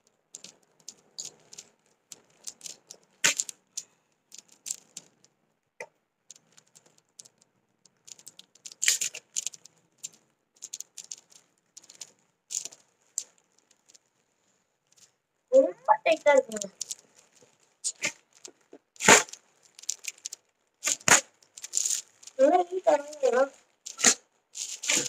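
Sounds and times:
packaging clicks and rattles: 0:00.4 - 0:05.4, 0:06.3 - 0:14.2, 0:16.1 - 0:25.0.

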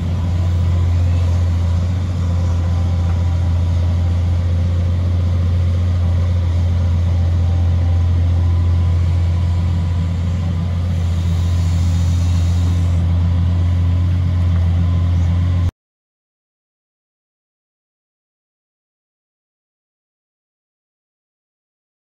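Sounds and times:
excavator diesel engine running: 0:00.0 - 0:15.7.

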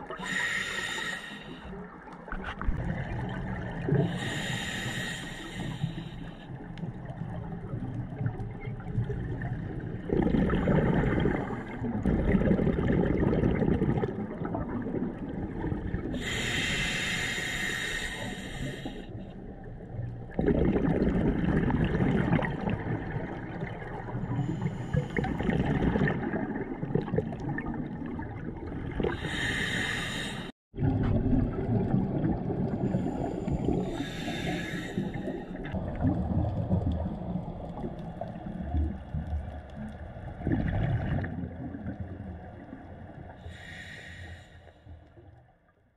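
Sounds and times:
regulator inhalation hiss: 0:00.2 - 0:01.6, 0:04.2 - 0:06.4, 0:16.2 - 0:19.1, 0:29.2 - 0:30.5, 0:33.9 - 0:35.4, 0:43.5 - 0:44.8
bubbling exhalation: 0:10.1 - 0:16.3, 0:20.3 - 0:23.7.

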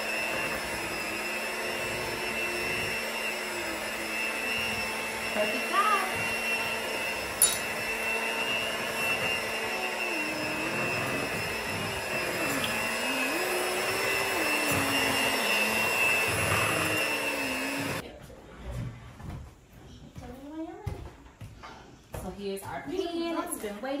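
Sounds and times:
electric hand mixer whining: 0:00.0 - 0:18.0.

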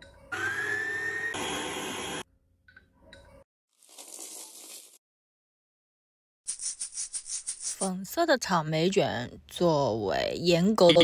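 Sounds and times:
electric stand mixer motor whine: 0:00.3 - 0:02.3.

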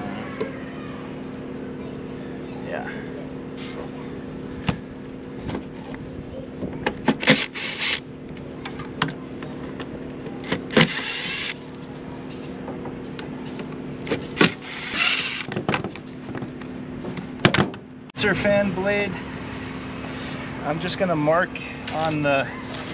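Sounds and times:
cordless drill whirring: 0:10.7 - 0:11.6, 0:14.6 - 0:15.5.

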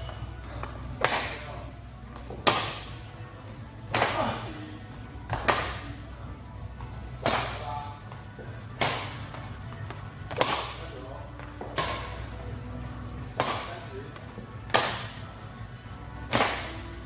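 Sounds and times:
badminton rackets hitting shuttlecock: 0:16.3 - 0:16.7.

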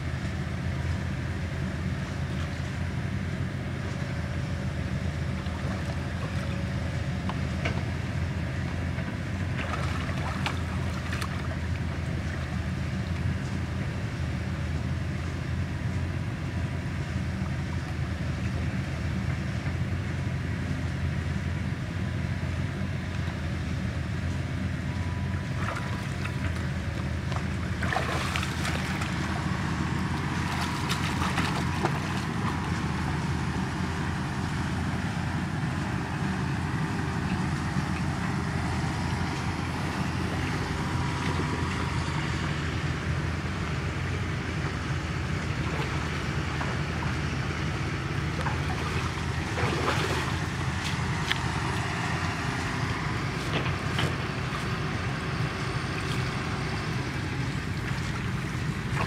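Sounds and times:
water splashing: 0:09.4 - 0:13.2, 0:25.5 - 0:34.2, 0:37.5 - 0:42.7, 0:44.6 - 0:59.0.

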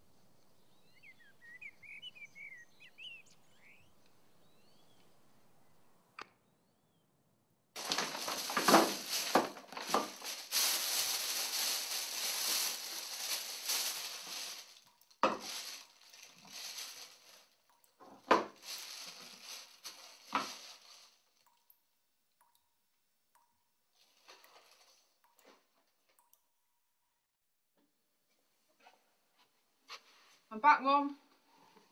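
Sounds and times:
plastic bag crinkling: 0:07.8 - 0:21.4.

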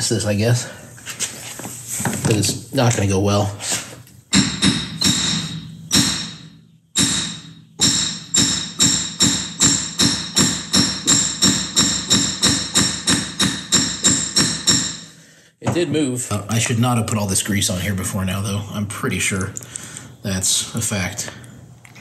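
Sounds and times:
hammer striking metal axle: 0:04.3 - 0:15.2.

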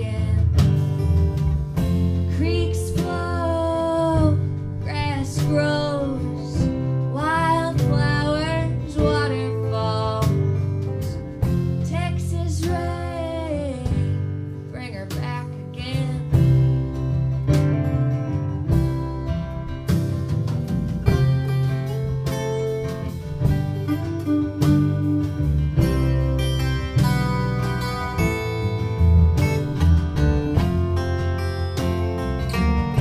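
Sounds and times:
woman singing: 0:00.0 - 0:00.8, 0:02.3 - 0:16.8
strummed acoustic guitars: 0:00.0 - 0:33.0.

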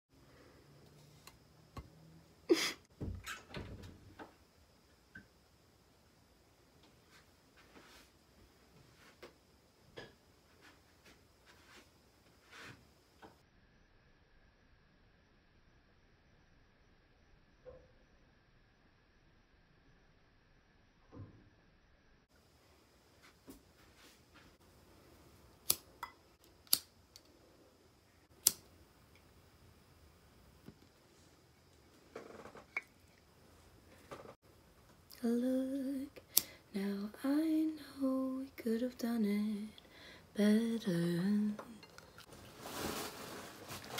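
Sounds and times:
lighter sparking clicks: 0:25.6 - 0:27.3, 0:28.4 - 0:28.7, 0:36.2 - 0:36.6
scraping rustle: 0:42.2 - 0:43.9.

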